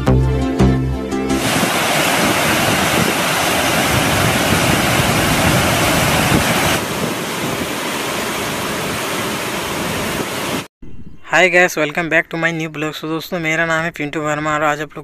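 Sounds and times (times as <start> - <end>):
waterfall rushing: 1.4 - 10.7.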